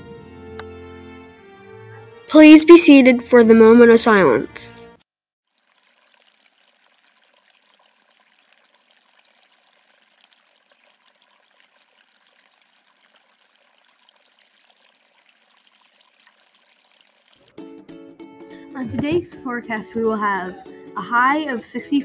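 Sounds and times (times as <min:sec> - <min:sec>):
faint trickling water: 0:05.5 - 0:17.5.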